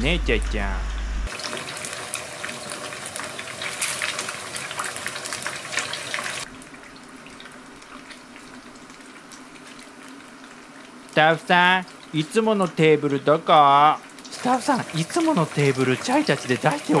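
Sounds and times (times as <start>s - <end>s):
food deep-frying in hot oil: 1.3s - 17.0s.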